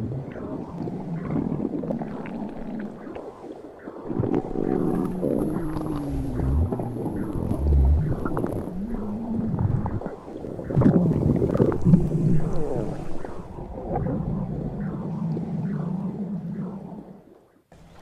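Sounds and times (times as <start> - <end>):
stomach gurgling and rumbling: 0.0 - 18.0
low thuds: 4.2 - 16.0.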